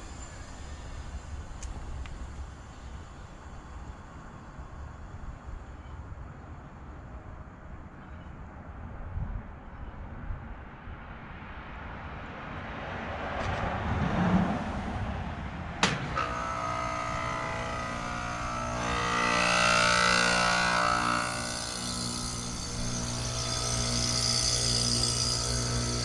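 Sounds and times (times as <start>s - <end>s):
hiss: 0.0s - 5.0s
compressor hum: 15.8s - 26.0s.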